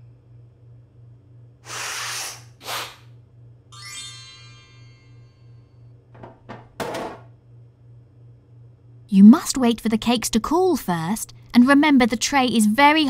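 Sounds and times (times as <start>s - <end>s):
steady low hum: 0.0s - 3.8s, 4.7s - 13.0s
cartoon hiss bursts: 1.6s - 3.1s
sparkling upward chime: 3.7s - 5.6s.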